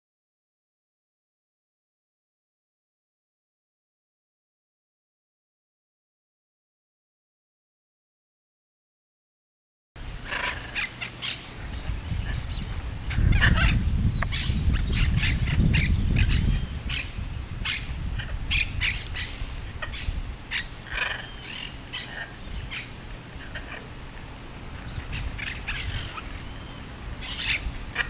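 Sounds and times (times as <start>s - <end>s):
macaws calling: 10.2s - 28.0s.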